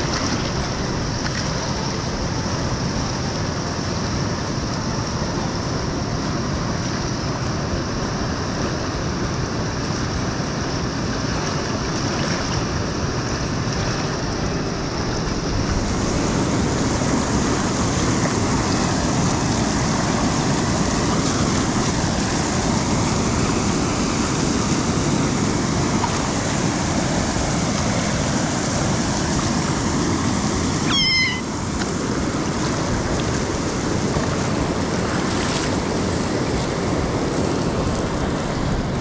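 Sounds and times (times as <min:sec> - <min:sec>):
river rushing over rapids: 0:00.0 - 0:39.0
otter squeak: 0:30.8 - 0:31.5.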